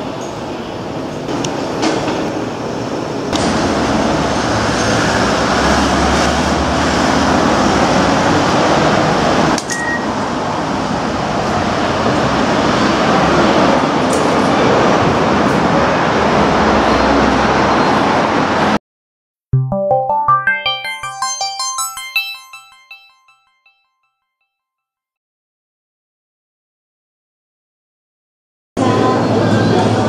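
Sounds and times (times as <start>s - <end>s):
railway station rumble: 0.0s - 18.8s, 28.8s - 30.0s
ticket gate high beep: 9.7s - 10.2s, 19.6s - 23.8s.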